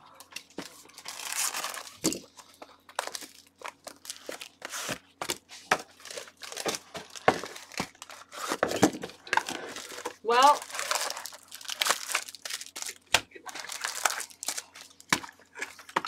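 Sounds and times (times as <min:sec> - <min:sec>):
plastic wrapping crinkling and tearing: 0:00.4 - 0:05.2, 0:05.8 - 0:16.0.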